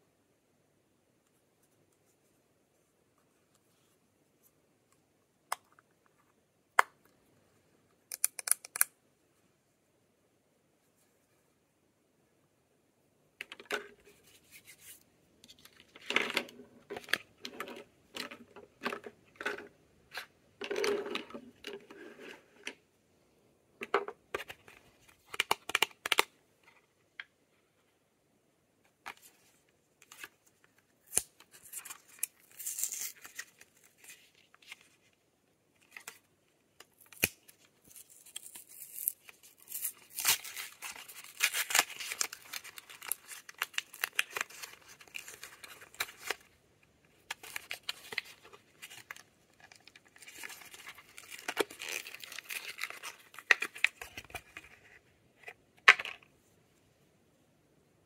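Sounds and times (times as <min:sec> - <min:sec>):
packaging crinkling and tearing: 0:36.9 - 0:46.5, 0:47.2 - 0:54.6.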